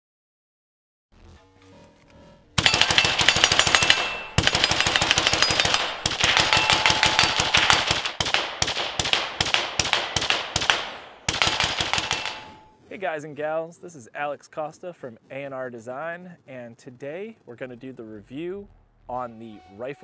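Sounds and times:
suppressed rifle firing: 2.6s - 12.7s.

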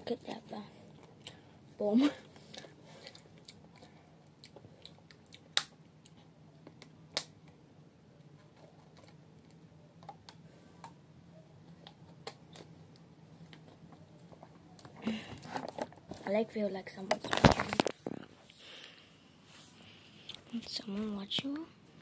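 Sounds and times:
faint low hum: 0.0s - 22.0s
chewing and handling noises: 0.9s - 1.5s, 2.2s - 7.6s, 8.2s - 11.0s, 11.6s - 16.3s.

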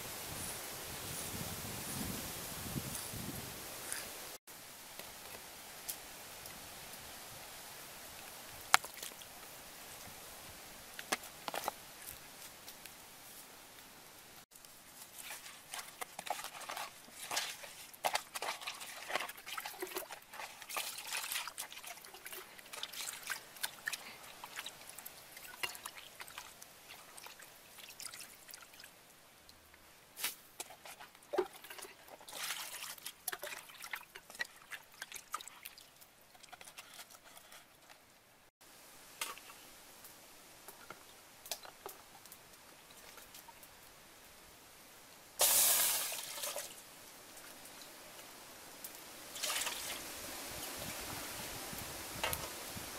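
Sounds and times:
water splashing in basin: 31.3s - 36.0s, 45.4s - 46.8s, 49.3s - 50.0s.

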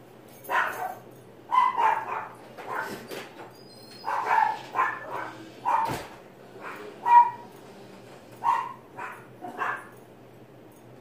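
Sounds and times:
dog barking: 0.5s - 3.0s, 4.0s - 7.5s, 8.4s - 9.9s.

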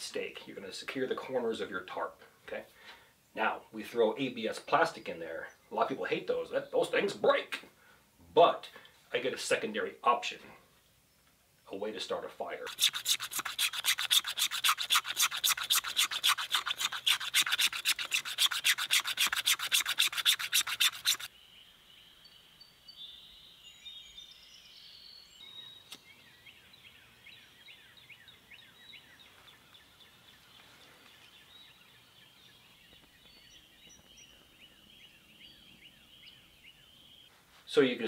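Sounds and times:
blade scraping plastic: 12.6s - 21.3s
faint bird chirps: 21.3s - 37.3s.

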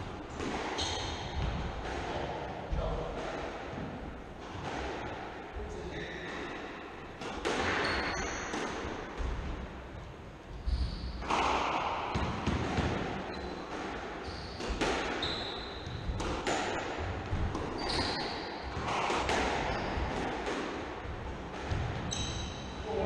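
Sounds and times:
squash ball cracking off rackets: 11.2s - 22.3s
shoes squeaking on wooden floor: 14.2s - 16.1s, 17.7s - 18.4s, 19.6s - 20.4s.

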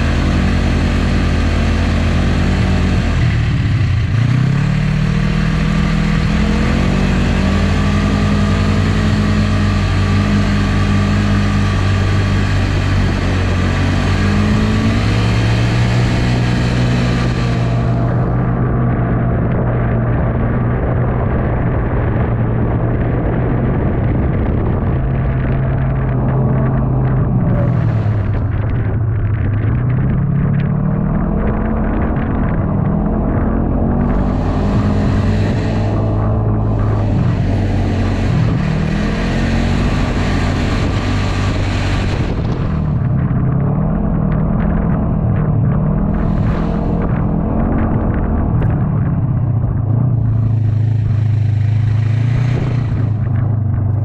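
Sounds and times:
rushing wind and snow: 0.0s - 54.0s
snowmobile engine droning: 0.0s - 54.0s.

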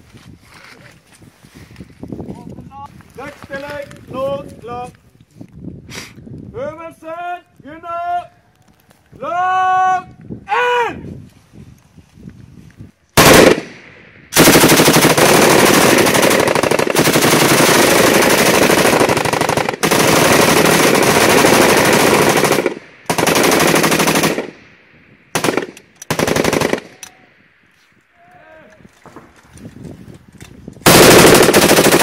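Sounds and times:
machine guns firing automatic: 13.2s - 13.7s, 14.4s - 24.5s, 25.4s - 27.1s, 30.8s - 32.0s.

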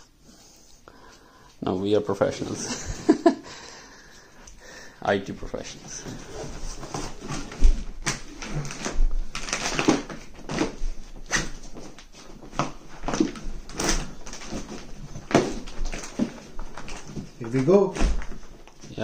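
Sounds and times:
plastic bag crinkling and rustling: 5.3s - 19.0s.

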